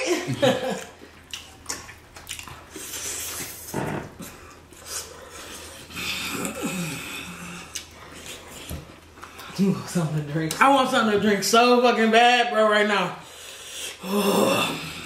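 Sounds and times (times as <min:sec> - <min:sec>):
people chewing and smacking: 0:00.3 - 0:10.6.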